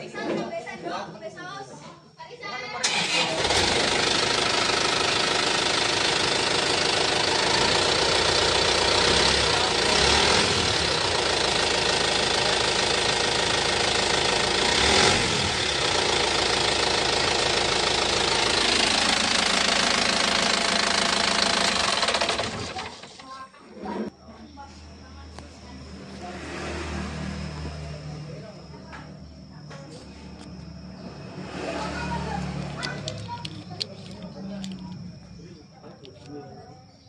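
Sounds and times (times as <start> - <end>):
diesel truck engine idling: 2.8 - 23.3, 27.1 - 36.1.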